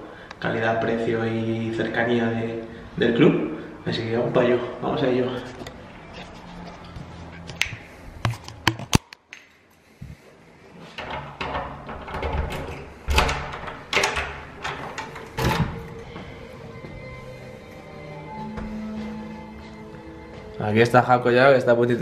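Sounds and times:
door handle and lock clicking: 11.0s - 16.0s.

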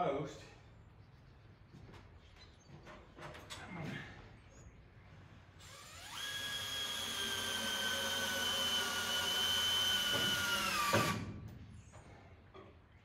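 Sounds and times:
power drill boring into wood: 5.6s - 11.3s.

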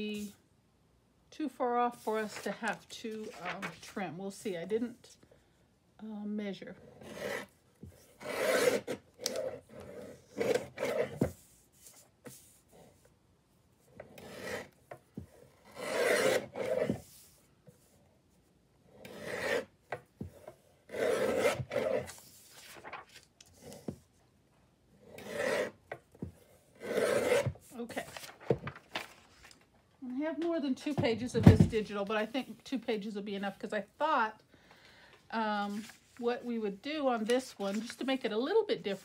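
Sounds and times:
paper sliding: 21.0s - 23.9s, 26.9s - 29.6s.

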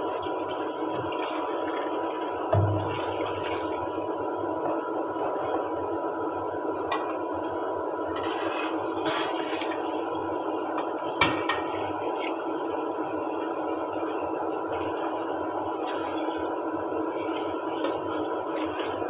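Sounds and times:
tap water running into sink: 0.1s - 3.9s.

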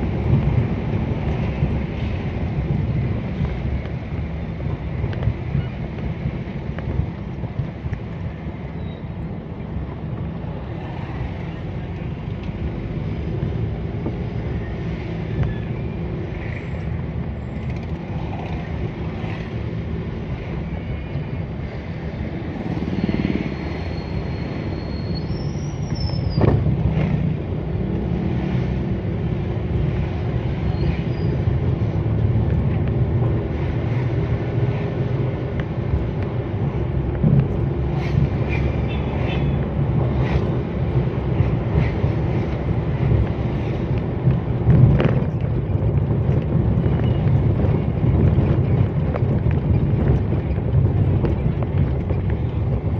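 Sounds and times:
wind on microphone: 0.0s - 24.8s, 25.4s - 52.9s
vehicle engine and road noise: 0.0s - 52.9s.

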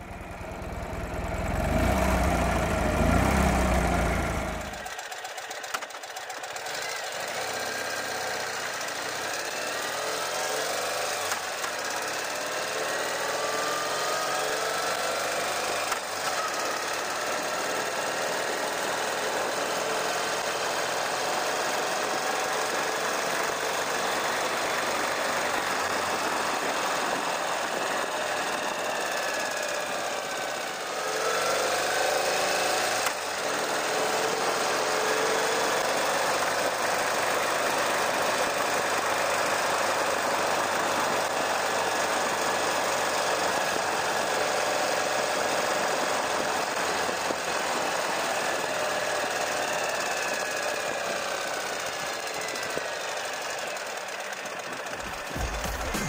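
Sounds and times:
wind and road noise: 0.0s - 4.9s, 21.2s - 56.0s
motorcycle engine running: 0.0s - 56.0s.

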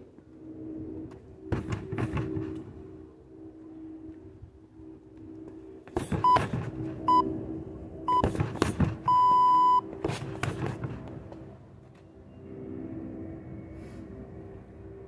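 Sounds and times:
kicks thudding on punching bag: 6.0s - 6.8s, 8.2s - 9.1s
electronic timer beeping: 7.1s - 7.3s, 9.1s - 9.8s.

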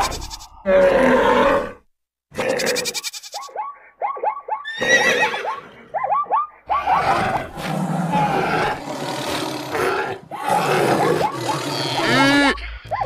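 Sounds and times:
harsh animal cry: 0.0s - 3.6s, 4.6s - 5.7s, 6.7s - 13.0s
short repeated animal calls: 2.4s - 3.8s.

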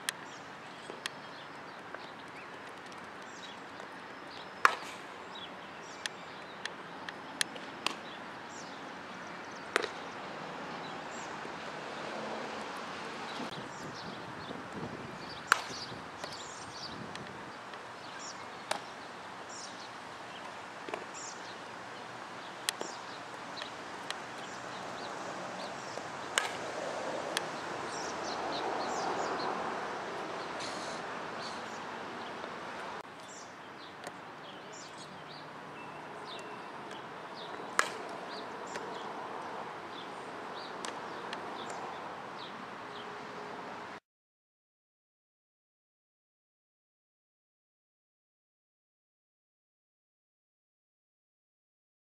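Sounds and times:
birds chirping: 0.0s - 43.6s
wind: 0.0s - 44.0s.

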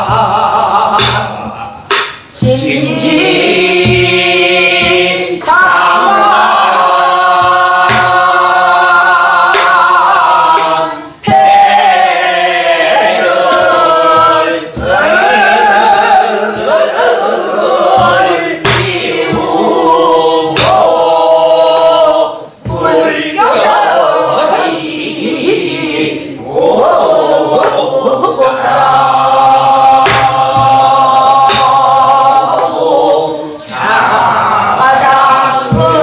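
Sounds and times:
barrel drum struck with stick: 0.0s - 8.6s, 9.4s - 21.8s, 22.6s - 23.9s, 30.0s - 32.6s.

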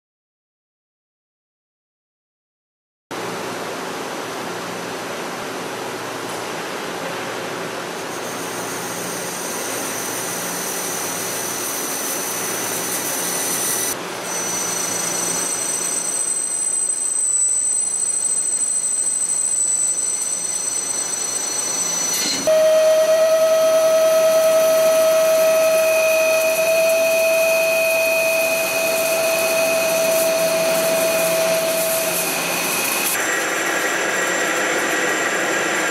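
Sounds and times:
drill boring with pitched whine: 8.0s - 35.9s
lathe cutting steel: 8.1s - 35.9s
thin high whistle: 8.2s - 33.2s.

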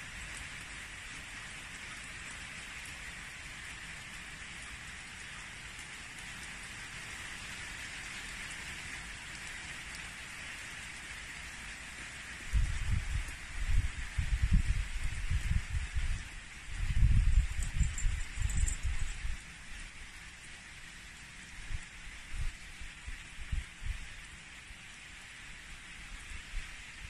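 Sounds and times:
steady rain falling: 0.0s - 27.0s.

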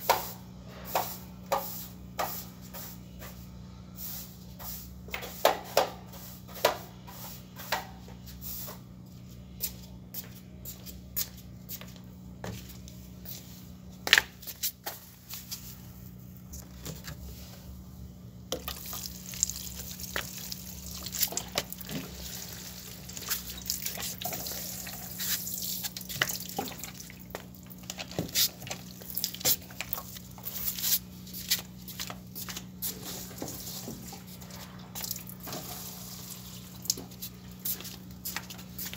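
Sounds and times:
water pouring and splashing: 18.6s - 27.3s.

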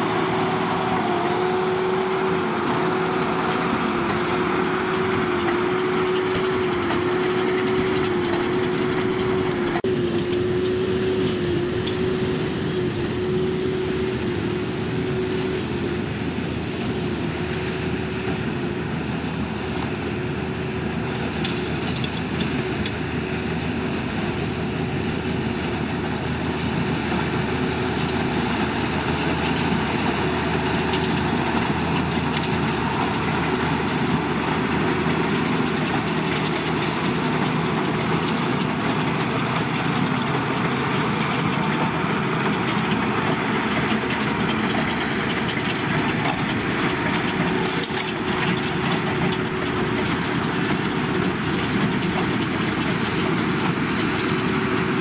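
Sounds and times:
tractor engine and baler humming: 0.0s - 55.0s.

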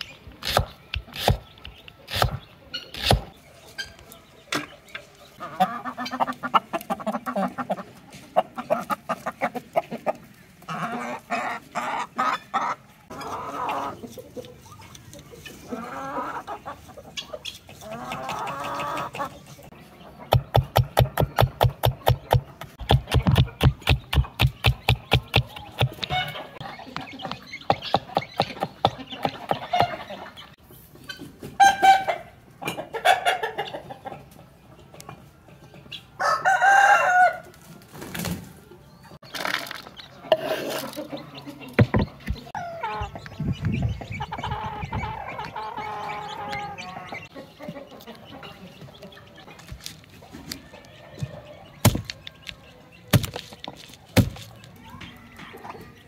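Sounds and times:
chickens clucking: 0.0s - 56.0s
rooster crowing: 36.2s - 37.5s.

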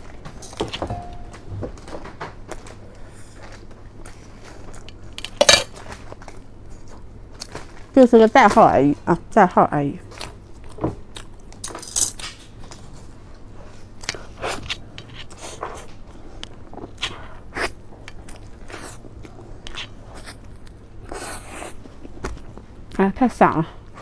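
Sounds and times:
person chewing cake: 10.1s - 11.6s, 12.6s - 23.0s.

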